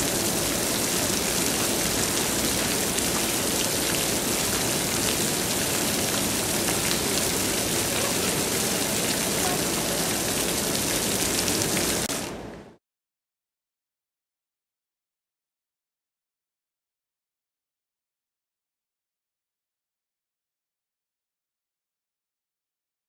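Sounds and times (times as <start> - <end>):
fountain water splashing: 0.0 - 12.4.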